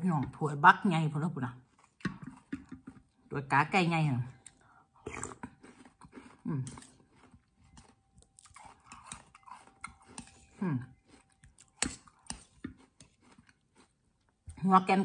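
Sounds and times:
close-up chewing: 4.3s - 14.6s
spoon scraping a bowl: 8.7s - 13.5s.

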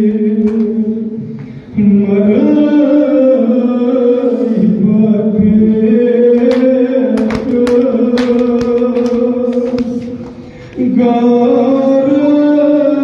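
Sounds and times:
men chanting a lament: 1.8s - 13.0s
hands slapping chests: 6.4s - 10.3s.

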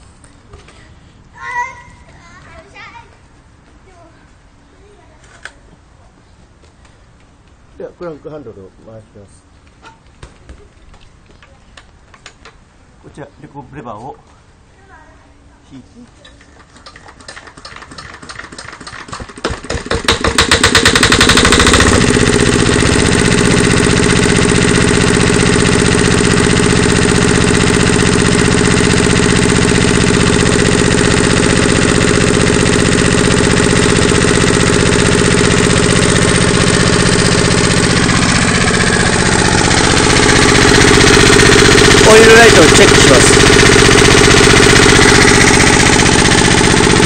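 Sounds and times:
diesel engine hand-cranked: 16.4s - 47.0s
diesel engine running: 19.9s - 47.0s.

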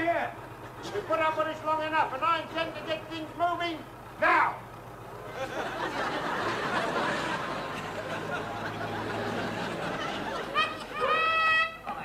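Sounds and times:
audience laughing: 5.2s - 12.0s.

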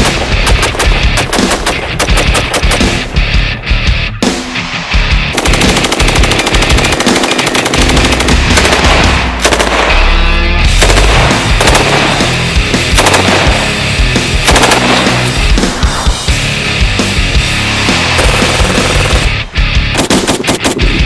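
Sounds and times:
rapid rifle fire: 0.0s - 3.1s, 5.3s - 10.0s, 10.7s - 15.7s, 18.1s - 21.0s
background music: 0.0s - 21.0s.

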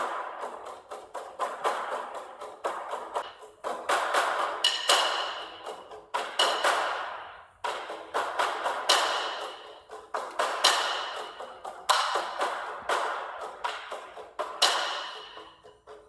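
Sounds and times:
percussive background music: 0.0s - 16.0s.

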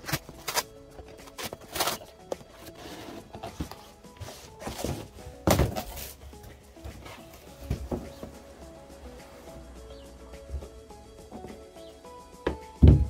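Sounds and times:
cardboard box rustling and knocking: 0.0s - 8.4s
background music: 0.0s - 13.0s.

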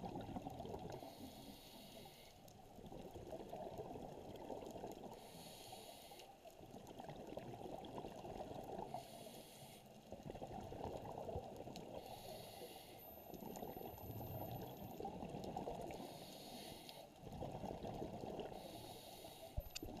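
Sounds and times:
swimmer breathing hiss: 1.0s - 2.4s, 5.2s - 6.3s, 9.0s - 9.9s, 12.0s - 13.0s, 16.0s - 17.1s, 18.6s - 19.6s.

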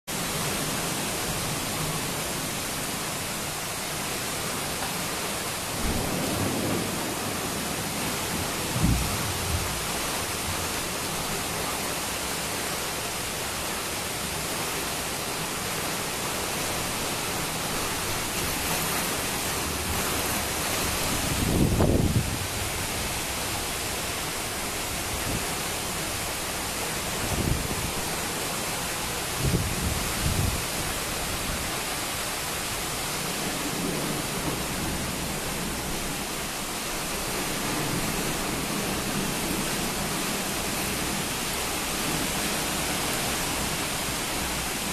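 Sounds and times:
heavy rain pouring: 0.0s - 44.9s
thunder rumbling: 5.7s - 10.7s.

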